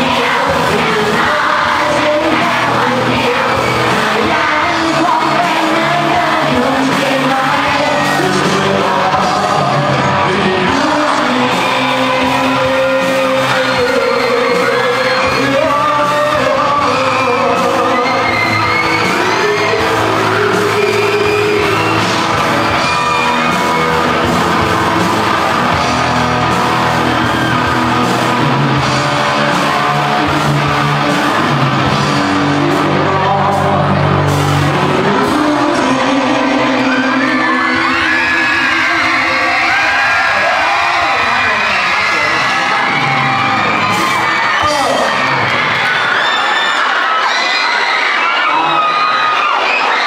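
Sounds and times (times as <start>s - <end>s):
person singing: 0.0s - 45.1s
drums: 0.0s - 50.0s
electric guitars: 0.0s - 50.0s
live rock band playing: 0.0s - 50.0s.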